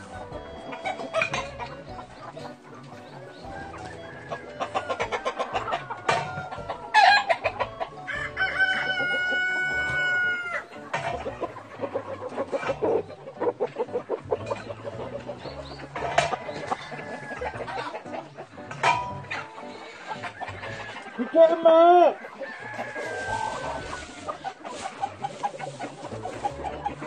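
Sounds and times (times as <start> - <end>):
chickens clucking: 0.0 - 27.0
rooster crowing: 7.9 - 10.7, 22.0 - 24.4.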